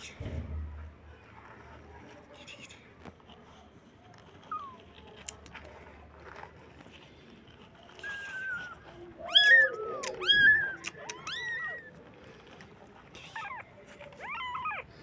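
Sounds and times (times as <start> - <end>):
kittens mewing: 7.7 - 15.0.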